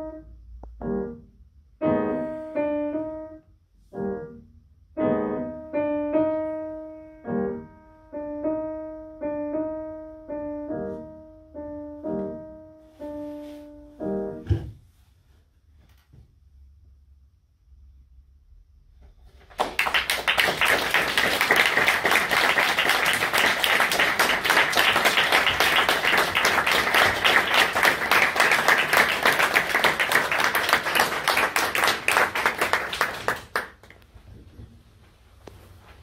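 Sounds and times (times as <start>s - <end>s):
audience applauding: 19.5s - 34.0s.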